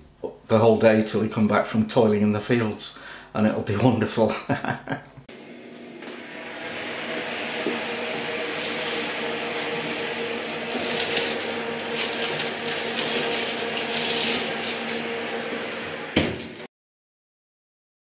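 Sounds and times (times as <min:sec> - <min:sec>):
oven hum: 0:05.3 - 0:16.7
wire rack scraping: 0:08.4 - 0:15.1
foil crinkling: 0:08.5 - 0:15.0.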